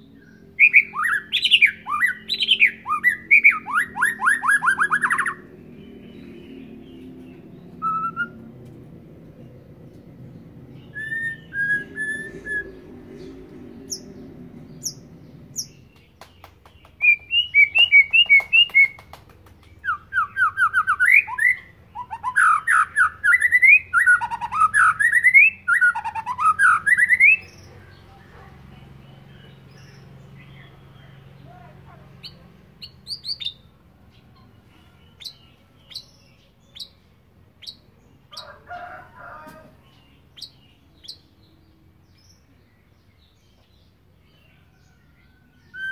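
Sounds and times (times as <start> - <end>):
bird singing whistled phrases: 0.6 - 5.4, 7.8 - 8.4, 10.8 - 12.8, 19.8 - 27.6.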